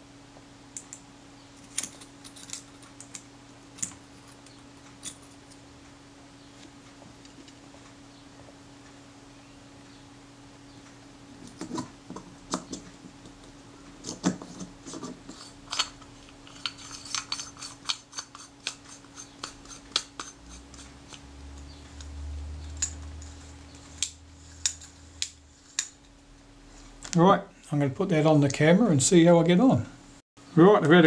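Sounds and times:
faint steady hum: 0.0s - 31.0s
metal parts clicking and tapping: 1.6s - 5.6s, 11.4s - 26.1s.

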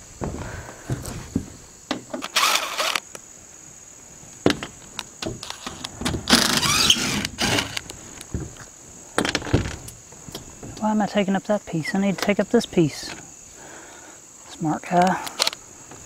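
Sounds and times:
cordless drill whirring: 2.2s - 3.0s, 6.3s - 7.8s.

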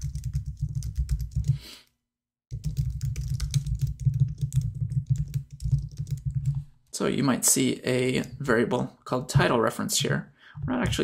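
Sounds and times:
typing on a computer keyboard: 0.0s - 1.6s, 2.5s - 6.6s.

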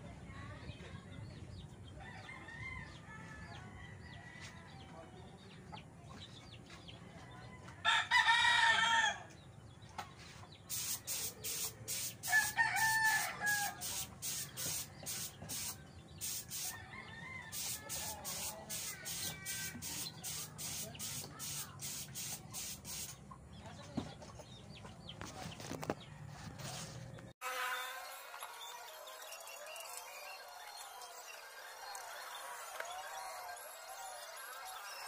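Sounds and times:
rooster crowing: 7.8s - 9.3s, 12.2s - 14.1s, 16.2s - 18.8s
chickens clucking: 13.8s - 27.1s
short high hisses: 17.6s - 23.1s.

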